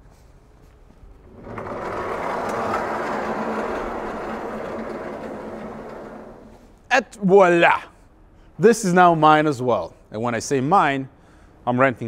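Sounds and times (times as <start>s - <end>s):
sliding garage door rolling open: 1.2s - 6.9s.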